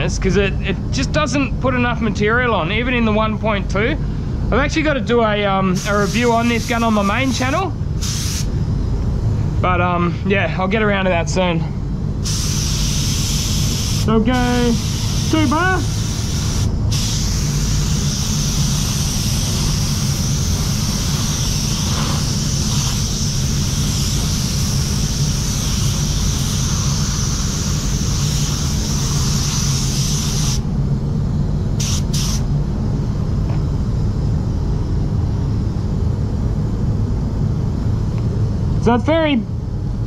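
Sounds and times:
fans humming: 0.0s - 40.0s
spray gun hissing: 5.8s - 8.5s, 12.2s - 30.7s, 31.8s - 32.5s.

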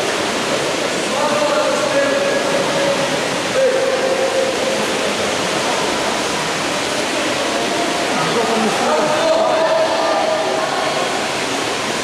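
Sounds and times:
water splashing in pool: 0.0s - 12.0s.

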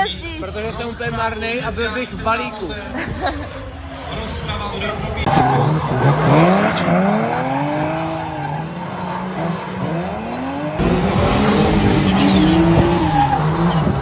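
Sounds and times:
car engine revving: 3.4s - 14.0s
tyre squeal: 12.0s - 14.0s.

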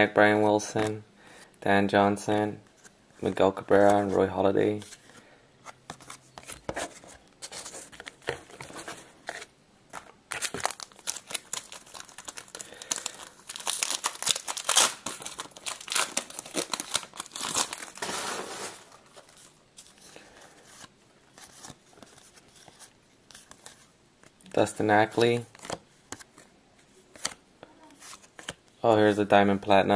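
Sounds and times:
wrapper tearing and crinkling: 10.3s - 19.0s.

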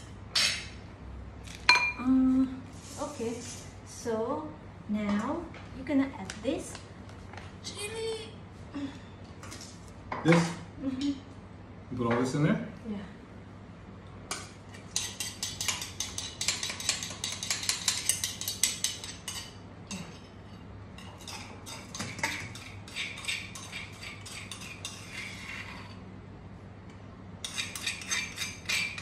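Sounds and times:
metal spoon scraping a mortar: 21.0s - 26.0s, 27.4s - 29.0s.

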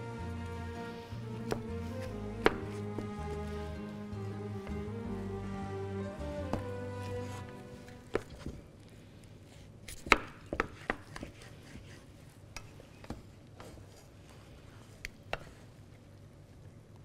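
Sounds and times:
wooden spatulas knocking on pan: 2.4s - 2.8s.

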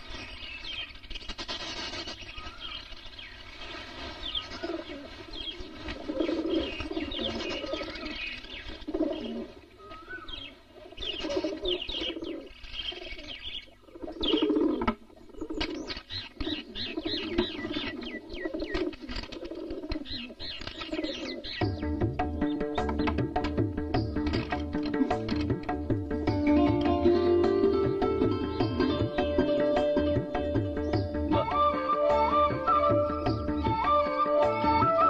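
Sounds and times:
birds chirping: 0.0s - 35.0s
pigeons cooing: 4.0s - 23.2s.

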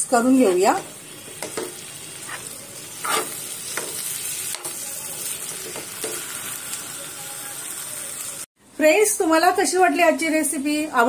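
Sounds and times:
vegetables sizzling: 0.0s - 10.8s
metal spoon scraping frying pan: 1.3s - 4.1s.

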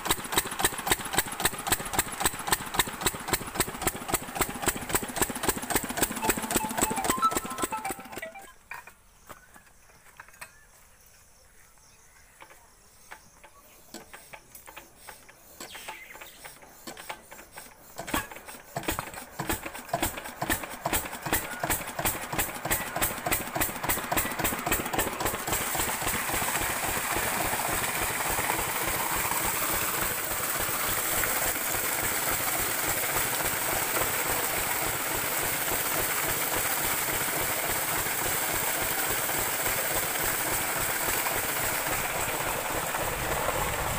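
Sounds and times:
water pouring from pipe: 0.0s - 7.9s, 18.8s - 43.9s
diesel engine starting and running: 0.0s - 8.5s, 15.7s - 43.9s.

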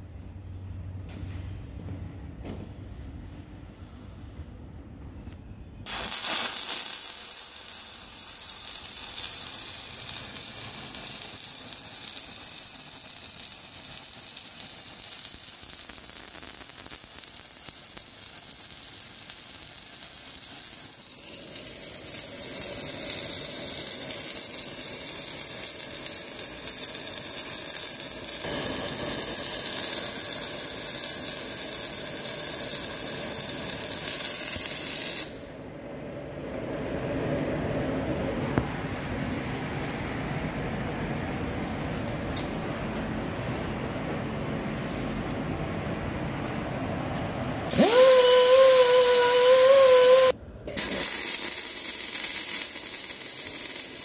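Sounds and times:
welding arc burning: 5.8s - 35.6s, 47.7s - 54.0s.

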